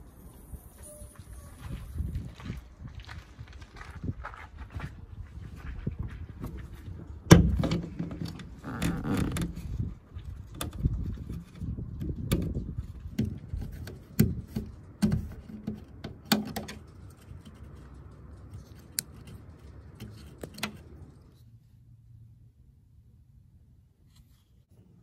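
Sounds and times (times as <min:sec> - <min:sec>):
plastic clicks and knocks: 0:11.4 - 0:17.8.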